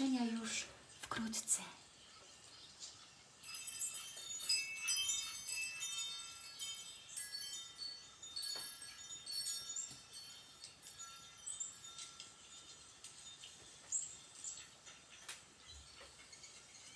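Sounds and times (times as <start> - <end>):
chimes ringing: 3.4 - 14.6.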